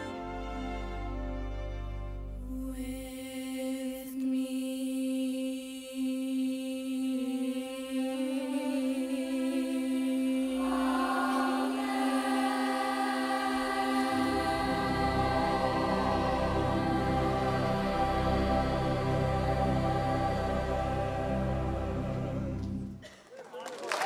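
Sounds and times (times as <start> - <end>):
children's choir singing: 2.6 - 22.8
low accompaniment: 9.2 - 23.0.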